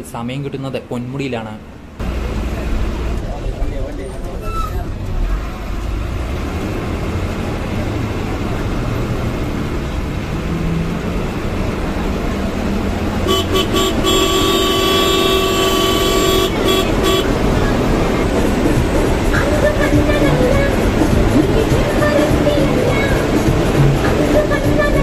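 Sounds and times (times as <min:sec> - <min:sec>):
bus engine and road noise: 0:00.0 - 0:25.0
vehicle horn toots: 0:13.2 - 0:17.7.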